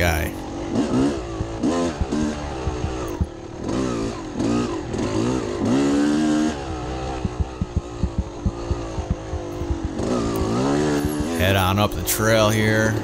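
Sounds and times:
dirt bike engine revving: 0:00.0 - 0:13.0
sharp knocks over rough ground: 0:01.2 - 0:03.3, 0:07.2 - 0:11.4.

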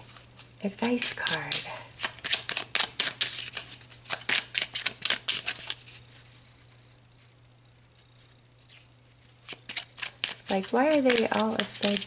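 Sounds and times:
cards shuffled by hand: 0:00.0 - 0:07.3, 0:07.9 - 0:12.0
faint low hum: 0:00.0 - 0:12.0.

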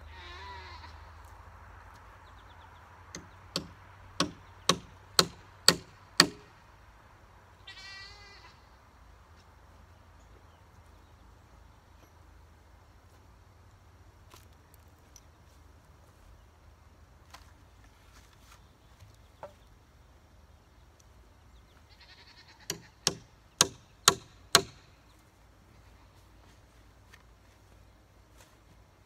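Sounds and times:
hammer blows on wood: 0:03.2 - 0:06.5.

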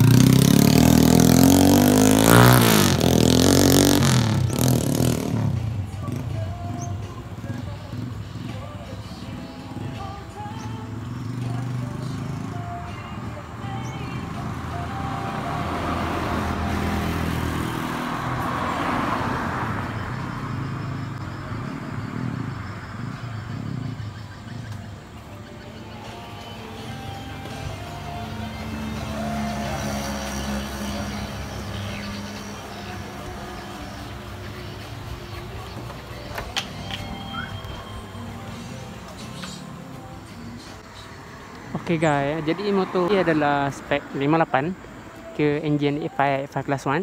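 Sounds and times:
motorcycle engine accelerating: 0:00.0 - 0:06.5, 0:14.4 - 0:25.0
motorcycle driving past: 0:00.0 - 0:07.0, 0:10.7 - 0:40.2
car driving past: 0:14.3 - 0:24.7, 0:26.7 - 0:34.8.

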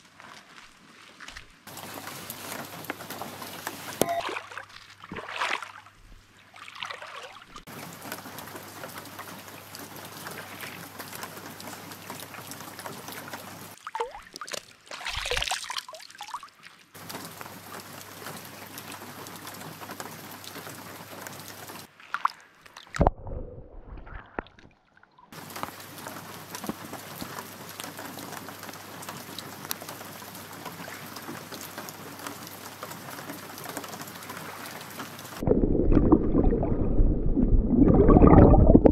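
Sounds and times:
rain pattering on water: 0:00.0 - 0:05.5, 0:07.6 - 0:23.0, 0:25.3 - 0:36.7
water handling sounds: 0:01.7 - 0:16.3.

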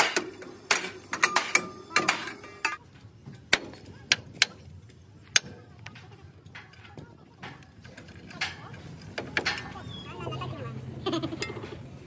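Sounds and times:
hammer clanging on steel: 0:00.0 - 0:02.8, 0:05.3 - 0:10.0.

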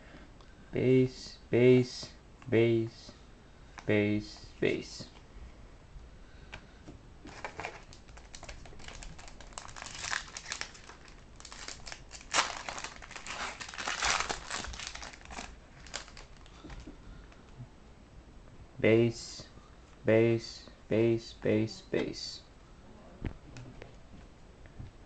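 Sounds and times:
foil wrapper crinkling: 0:07.3 - 0:16.9.

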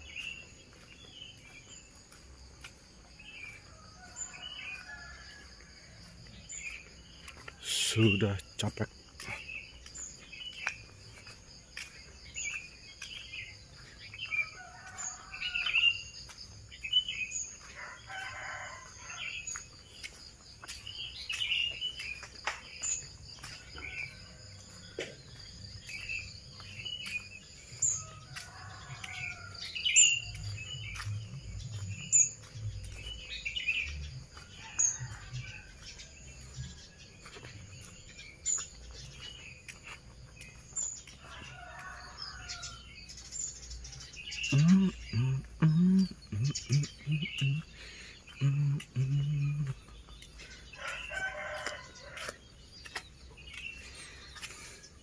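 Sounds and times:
footsteps: 0:00.0 - 0:16.9, 0:17.6 - 0:42.9, 0:44.5 - 0:55.0
birds chirping: 0:00.0 - 0:55.0
roosters crowing: 0:14.1 - 0:16.1, 0:17.6 - 0:20.2, 0:27.8 - 0:37.8, 0:41.1 - 0:52.4.

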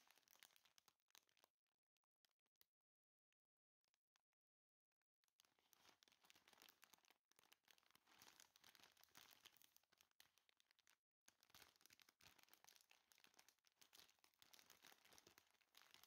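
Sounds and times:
plastic snack bag crinkling: 0:05.4 - 0:16.0.

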